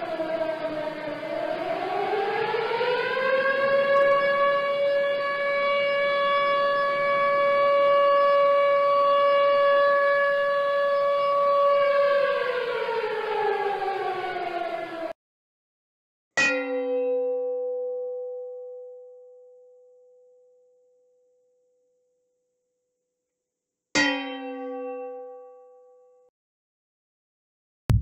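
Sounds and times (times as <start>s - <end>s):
siren wailing: 0.0s - 15.1s.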